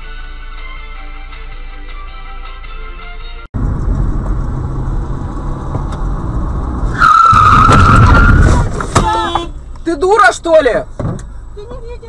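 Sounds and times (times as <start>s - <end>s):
road rumble: 3.5s - 12.0s
car engine: 3.6s - 12.0s
tyres squealing in a skid: 6.9s - 9.4s.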